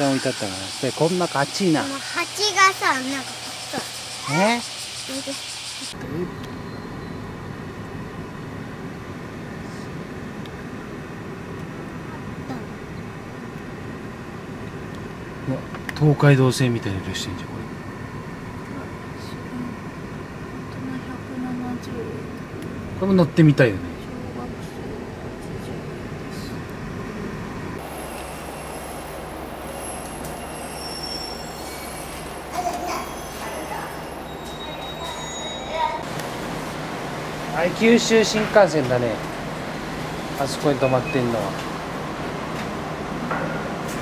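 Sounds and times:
streetcar wheels squealing on rails: 0.0s - 7.5s, 27.8s - 36.0s, 39.7s - 42.2s
thin high whines: 0.0s - 7.7s, 27.8s - 36.1s
traffic rumble: 0.0s - 44.0s.

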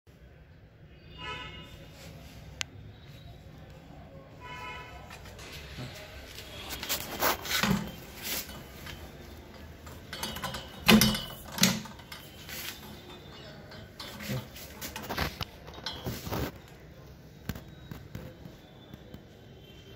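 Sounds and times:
metal knocks and clunks: 7.4s - 16.3s.

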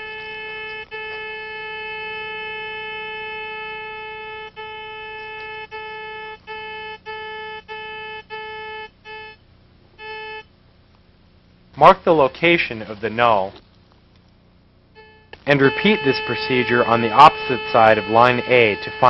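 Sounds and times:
receiver tone breaking into beeps: 15.0s - 19.0s.

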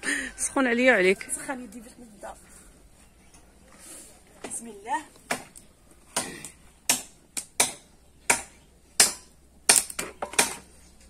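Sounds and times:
wood fire crackling and popping: 6.9s - 10.5s.

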